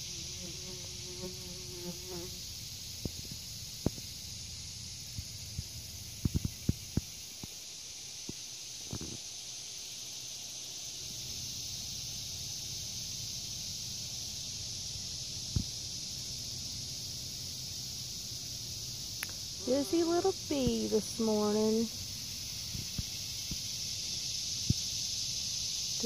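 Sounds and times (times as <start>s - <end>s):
steady high hiss: 0.0s - 26.0s
bee wings buzzing: 19.5s - 22.0s.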